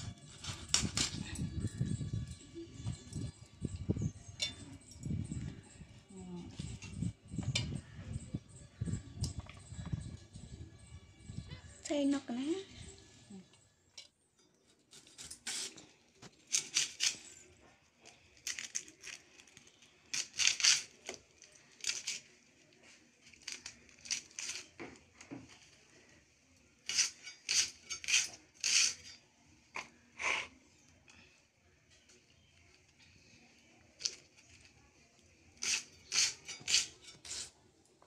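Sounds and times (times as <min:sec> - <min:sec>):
onion skins crackling and tearing: 0:14.9 - 0:25.8, 0:26.8 - 0:29.2, 0:33.9 - 0:34.8, 0:35.6 - 0:37.5.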